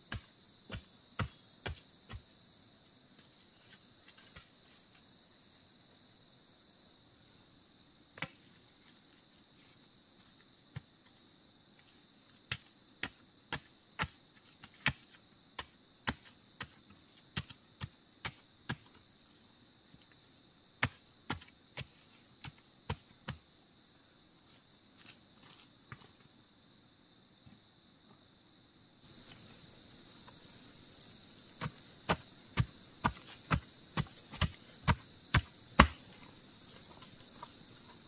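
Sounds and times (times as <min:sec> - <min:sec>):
insects droning: 0:00.0 - 0:38.0
blade chopping wood: 0:31.6 - 0:36.2.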